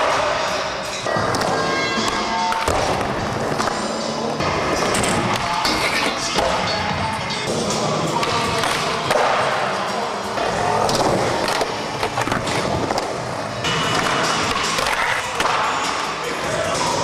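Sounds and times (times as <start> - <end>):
background music: 0.0 - 17.0
skateboard wheels rolling: 7.5 - 17.0.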